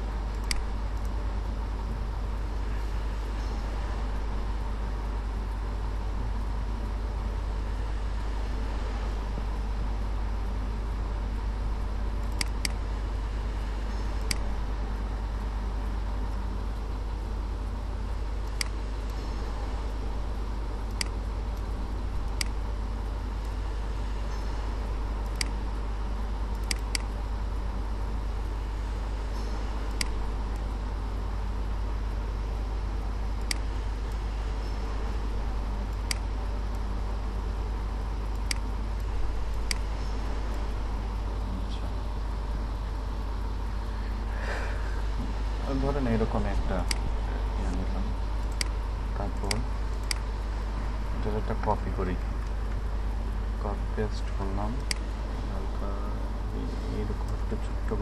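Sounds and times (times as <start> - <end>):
steady low hum and hiss: 0.0 - 58.0
computer mouse clicking: 0.3 - 1.2, 12.2 - 12.8, 18.4 - 20.0, 20.8 - 22.6, 25.2 - 25.8, 26.5 - 27.7, 29.4 - 30.8, 33.4 - 34.3, 35.9 - 36.8, 38.2 - 40.8, 46.5 - 47.1, 48.4 - 50.4.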